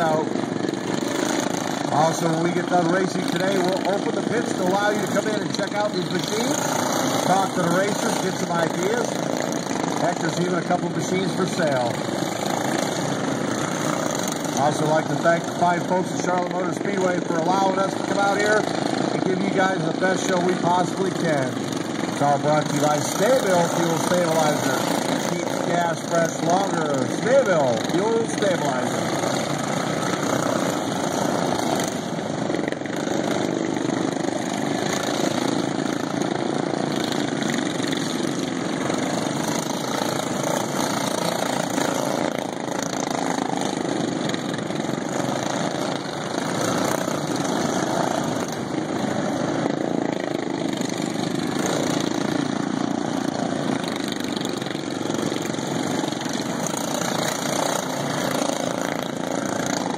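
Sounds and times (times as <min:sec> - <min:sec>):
lawn mower engines racing: 0:00.0 - 0:59.9.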